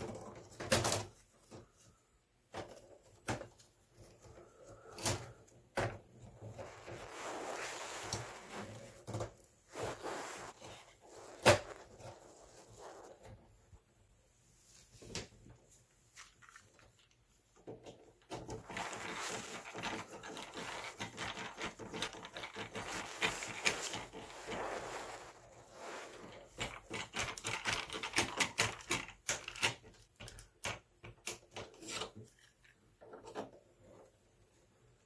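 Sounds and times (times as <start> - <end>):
rubbing and scraping: 6.3 - 13.8, 14.4 - 29.8.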